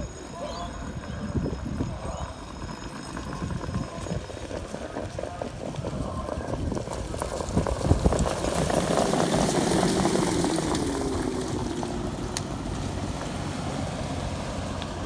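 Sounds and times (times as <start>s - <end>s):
hoofbeats and wheel noise: 0.0s - 15.0s
vehicle engine passing: 7.0s - 15.0s.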